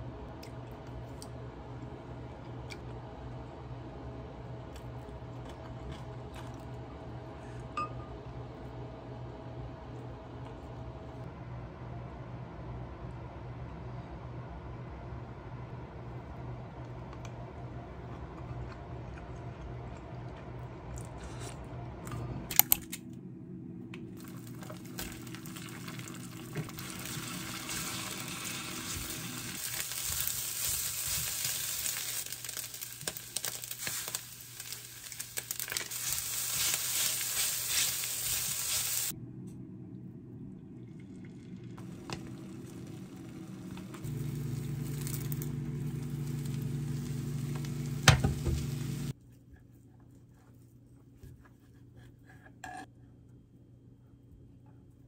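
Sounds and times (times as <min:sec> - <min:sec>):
egg frying in small pan: 0:24.2 - 0:39.1, 0:41.0 - 0:49.1
rice sizzling in frying pan: 0:24.2 - 0:39.1, 0:41.8 - 0:49.1.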